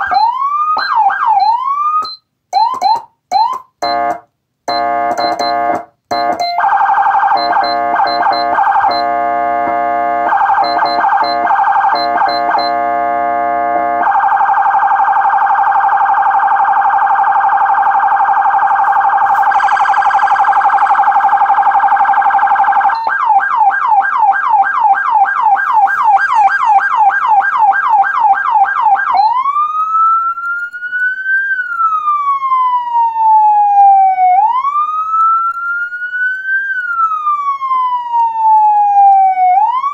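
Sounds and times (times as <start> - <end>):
slow wailing siren: 0.0 - 39.9
buzzy air-horn siren tone: 3.8 - 14.6, 17.6 - 23.0, 25.3 - 27.9
fast-sweeping siren tone: 6.2 - 34.1.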